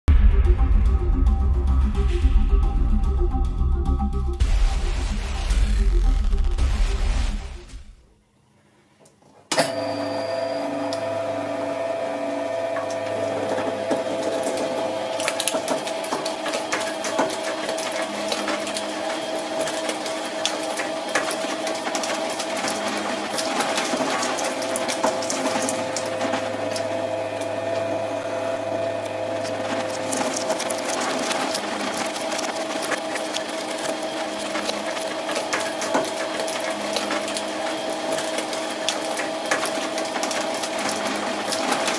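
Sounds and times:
shredder motor hum and whine: 4.4s - 7.9s, 9.7s - 41.9s
shredder grinding and crackling: 10.8s - 41.9s.

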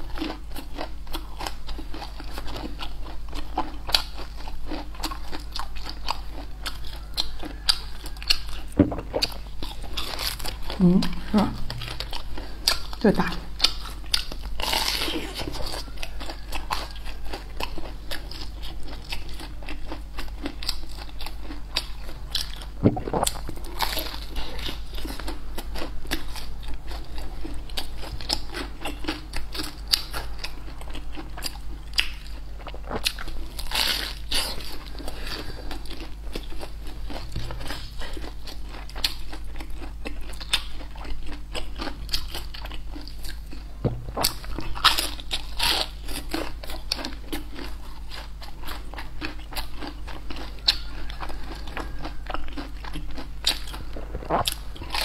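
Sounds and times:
chewing crispy fried food: 0.0s - 55.0s
low hum: 7.7s - 13.6s, 22.0s - 27.4s, 43.6s - 45.3s.

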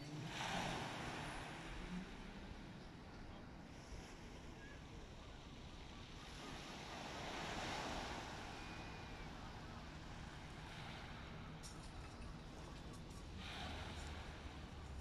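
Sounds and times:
small waves on shingle beach: 0.2s - 2.5s, 6.2s - 15.0s.

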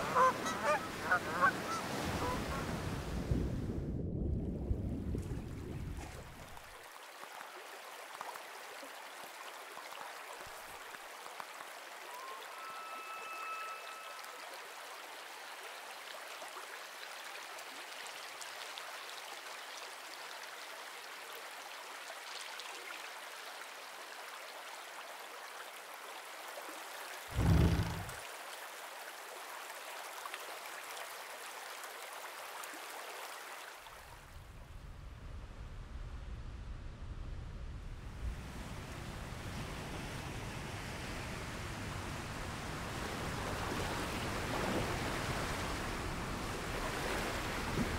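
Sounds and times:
trickling water: 5.0s - 34.0s
faint high tone: 12.1s - 14.4s
deep low thump: 27.3s - 28.2s.

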